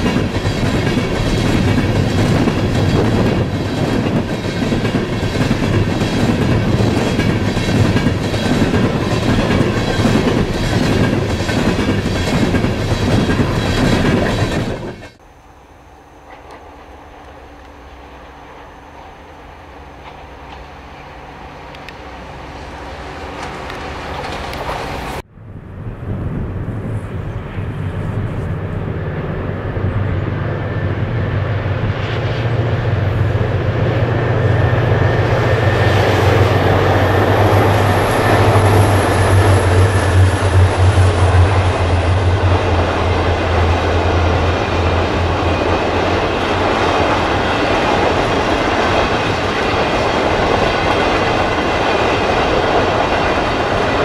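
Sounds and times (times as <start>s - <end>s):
train wheels clacking on rail joints: 0.0s - 15.2s
diesel locomotive engines: 0.0s - 54.0s.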